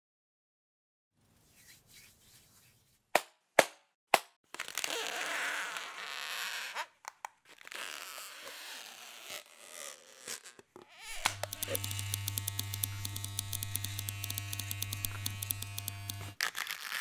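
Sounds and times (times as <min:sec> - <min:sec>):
sharp clicks: 0:11.2 - 0:16.4.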